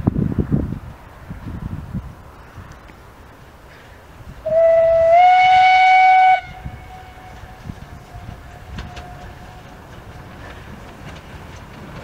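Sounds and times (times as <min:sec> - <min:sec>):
steam locomotive whistle: 0:04.4 - 0:09.7.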